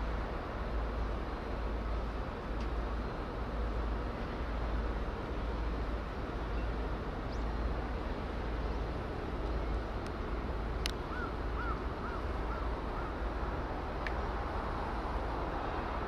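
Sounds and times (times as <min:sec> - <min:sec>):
outdoor background rumble: 0:00.0 - 0:16.0
bird calling: 0:11.1 - 0:13.2.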